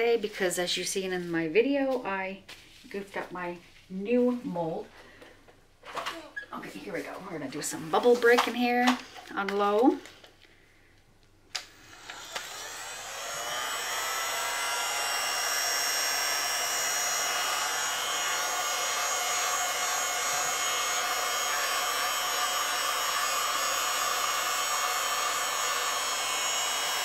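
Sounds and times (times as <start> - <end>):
heat gun whine: 11.5 - 27.0.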